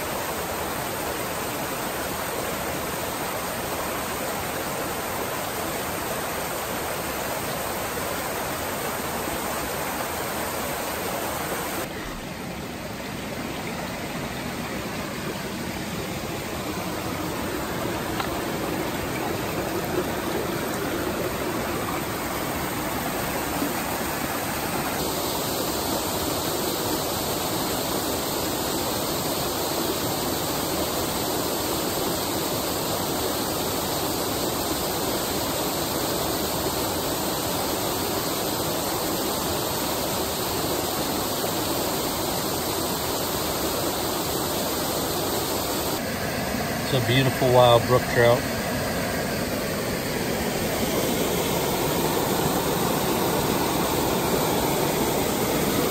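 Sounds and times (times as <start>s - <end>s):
waterfall pouring into pool: 13.2s - 46.0s, 46.8s - 48.6s, 49.4s - 55.9s.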